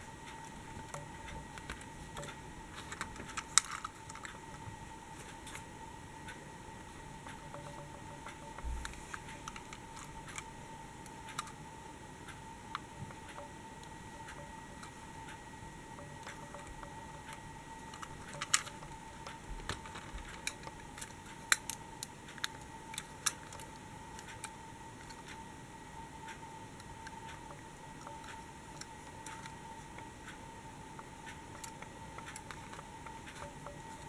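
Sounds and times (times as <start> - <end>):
faint steady tone: 0.0 - 34.0
toy models clicking in hands: 0.9 - 4.4, 16.3 - 25.4.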